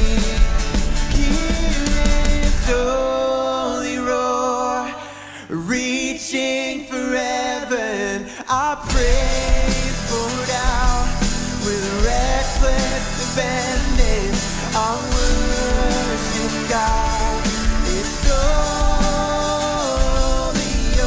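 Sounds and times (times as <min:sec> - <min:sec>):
drums and bass: 0:00.0 - 0:03.2, 0:08.8 - 0:21.0
guitars and keyboard: 0:00.0 - 0:05.6, 0:08.5 - 0:21.0
man singing: 0:00.0 - 0:21.0.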